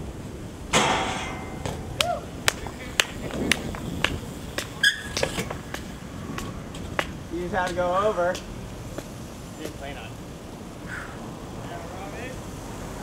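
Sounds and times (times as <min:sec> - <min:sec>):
bike hitting metal handrail: 0:00.7 - 0:02.2.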